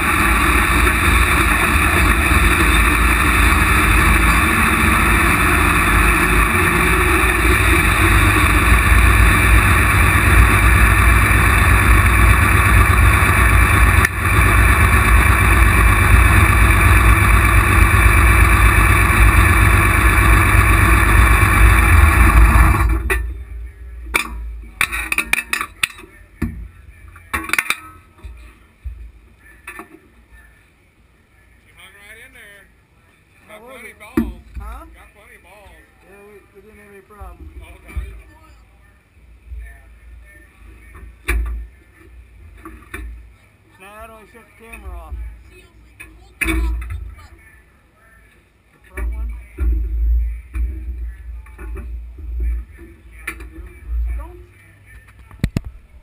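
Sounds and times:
tractor engine running loud: 0.0s - 25.9s
metal clanks and knocks: 24.1s - 26.7s.

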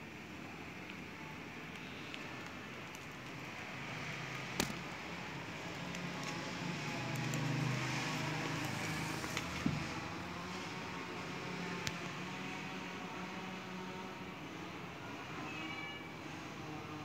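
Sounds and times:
plastic album sleeves crinkling: 1.6s - 9.9s.

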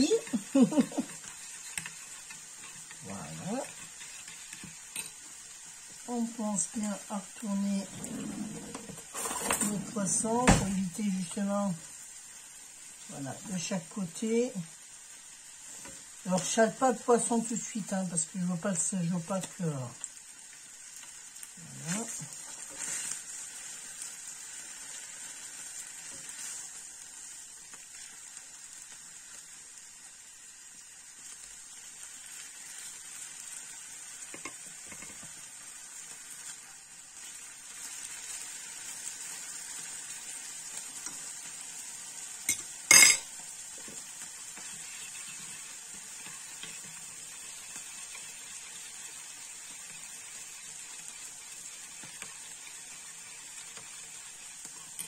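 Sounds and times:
fish sizzling in oil: 0.0s - 55.0s
metal utensil clinking: 42.5s - 43.3s.

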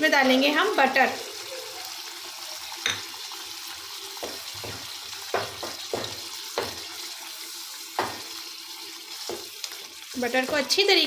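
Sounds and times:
curry sizzling in a pot: 0.0s - 11.0s
wooden spoon knocking against pot: 4.2s - 6.9s, 8.0s - 8.3s.

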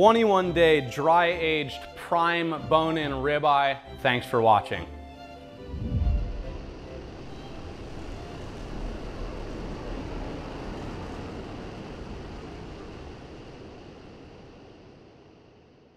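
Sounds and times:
ocean wave breaking: 5.6s - 10.7s.

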